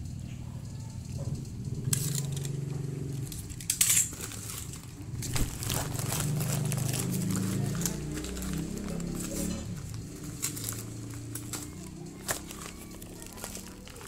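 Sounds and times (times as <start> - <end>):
packaging crinkling: 3.2 - 14.0.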